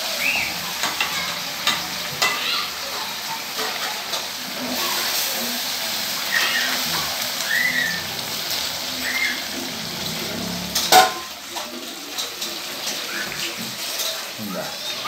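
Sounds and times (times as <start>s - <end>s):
frying hiss in a wok: 0.0s - 15.0s
metal ladle scraping pan: 6.3s - 12.8s.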